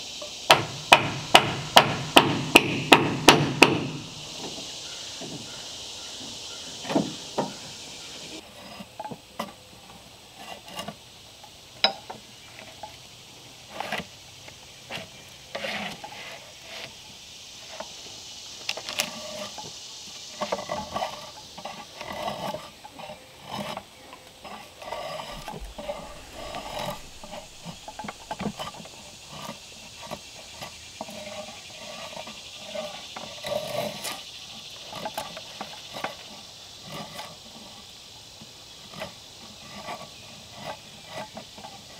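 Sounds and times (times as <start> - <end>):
drawknife scraping bark off log: 14.9 - 17.0, 20.4 - 30.2.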